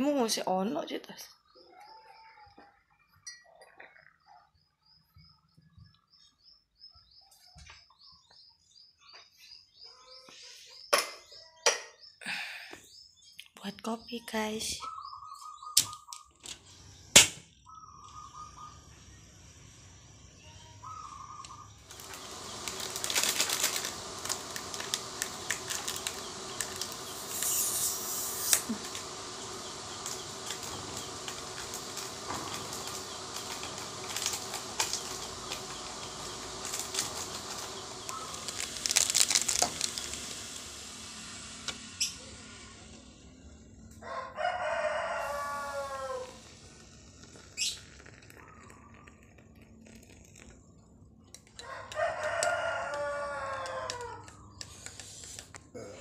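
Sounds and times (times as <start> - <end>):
gas stove burner hissing: 15.8 - 55.8
crackles and ticks: 21.4 - 42.3, 45.7 - 55.7.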